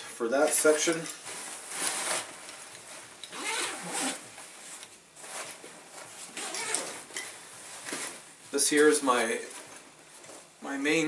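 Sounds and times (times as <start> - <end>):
zipper rasping open: 3.3 - 4.3, 6.4 - 7.0.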